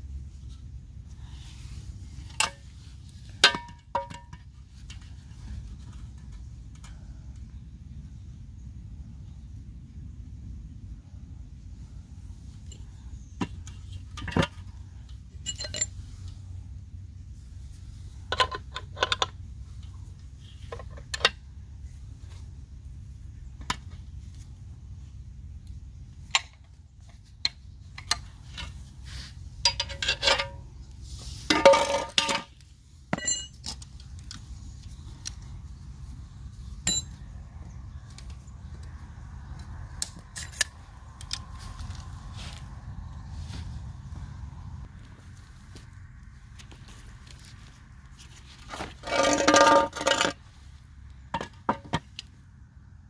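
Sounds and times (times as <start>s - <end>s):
metal tools clinking: 15.4s - 16.0s, 29.6s - 30.6s, 33.1s - 33.9s, 36.8s - 37.2s, 48.7s - 50.4s
low rumble: 33.9s - 48.3s.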